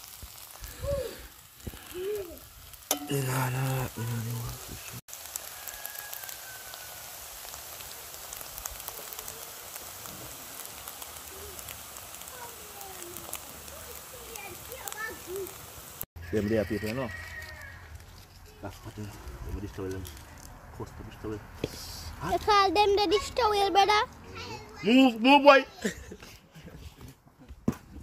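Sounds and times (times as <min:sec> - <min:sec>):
food sizzling in a frying pan: 0:00.0 - 0:20.5, 0:21.2 - 0:26.2
person speaking: 0:03.0 - 0:05.0.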